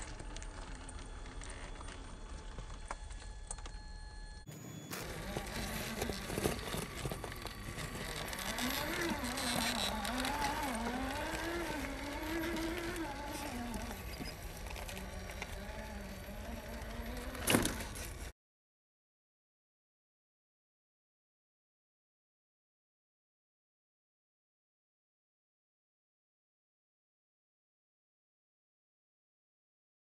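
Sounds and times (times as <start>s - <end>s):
electric motor whining: 0.0s - 18.3s.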